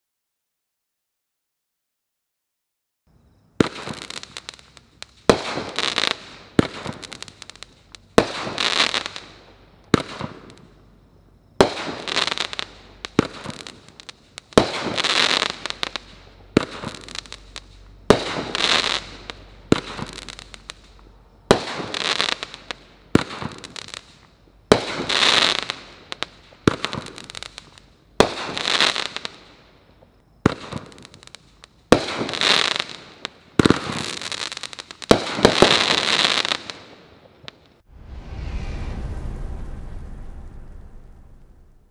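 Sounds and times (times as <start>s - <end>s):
firework bursts: 3.6s - 41.9s
firework launch reports: 37.8s - 41.9s.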